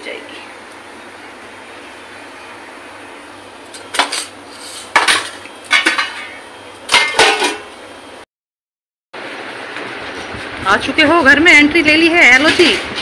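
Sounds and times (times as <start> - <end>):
metal dishes and utensils clattering: 5.0 - 7.7.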